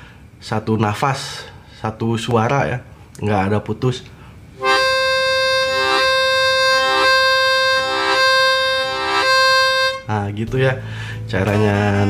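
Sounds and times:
harmonica note with pulsing chords: 0:04.6 - 0:10.2.

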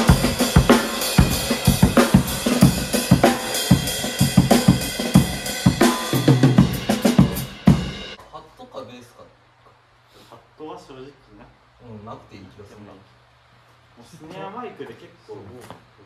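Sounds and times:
drum kit playing: 0:00.0 - 0:08.2.

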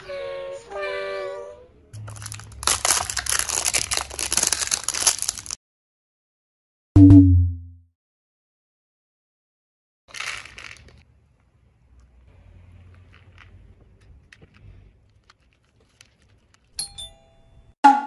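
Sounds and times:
plastic package crinkling: 0:02.0 - 0:05.6, 0:10.1 - 0:11.1, 0:13.0 - 0:16.8.

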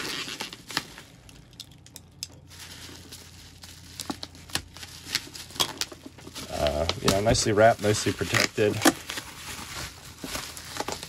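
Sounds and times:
paper tape peeling: 0:00.0 - 0:01.3
bubble wrap crinkling: 0:00.0 - 0:11.0.

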